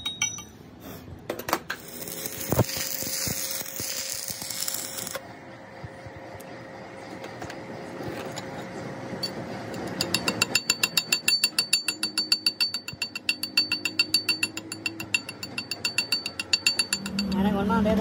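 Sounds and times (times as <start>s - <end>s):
hammer striking steel: 0.0s - 0.7s, 9.2s - 17.6s
low workshop noise: 0.0s - 18.0s.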